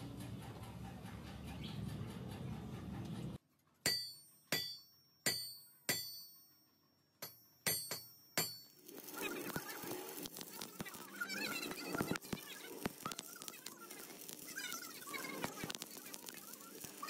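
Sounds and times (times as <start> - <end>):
metal strikes ringing like a bell: 3.9 - 8.8.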